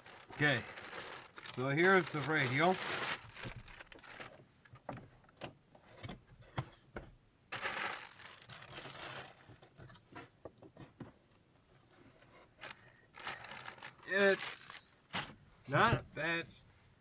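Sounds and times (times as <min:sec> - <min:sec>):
packaging rustling and crinkling: 0:00.0 - 0:04.4, 0:07.5 - 0:09.4, 0:12.6 - 0:14.9.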